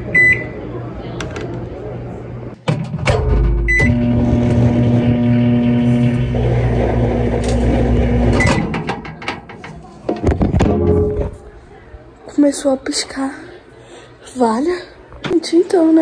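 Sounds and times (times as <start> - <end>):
microwave oven humming: 3.1 - 9.0
clicks and knock: 8.5 - 11.4.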